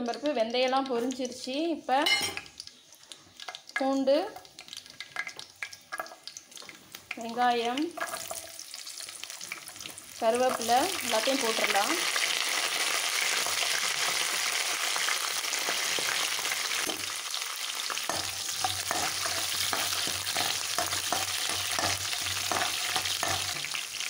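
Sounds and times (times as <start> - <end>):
aromatics sizzling in hot oil: 0.0 - 24.0
spatula scraping and tapping pan: 17.9 - 23.8.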